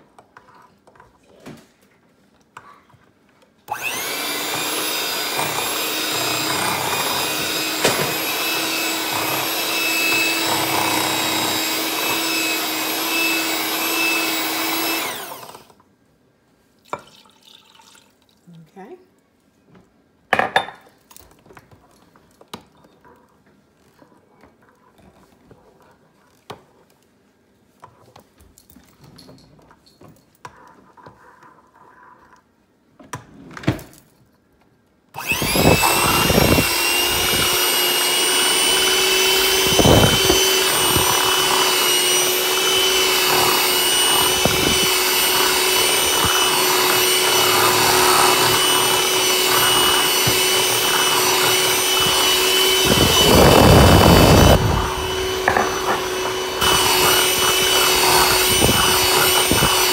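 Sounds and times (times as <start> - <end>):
electric hand mixer whining: 3.7 - 15.8, 35.2 - 59.9.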